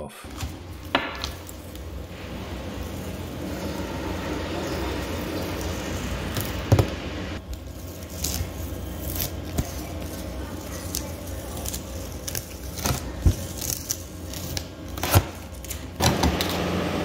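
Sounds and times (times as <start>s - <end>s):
masking tape peeling off canvas: 0.3s - 3.9s, 7.4s - 16.6s.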